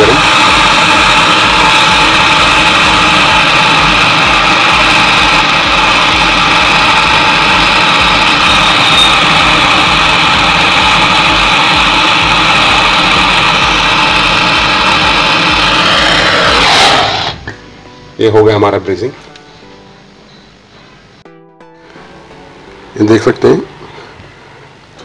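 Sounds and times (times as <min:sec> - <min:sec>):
torch flame hissing: 0:00.0 - 0:17.5.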